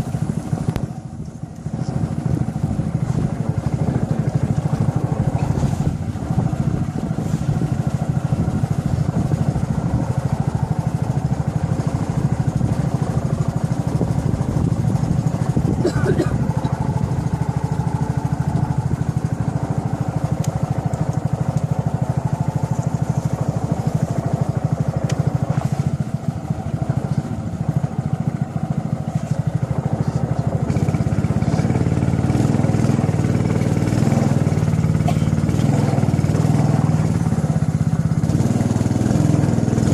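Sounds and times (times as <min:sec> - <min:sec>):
small boat motor running: 0:00.0 - 0:39.9.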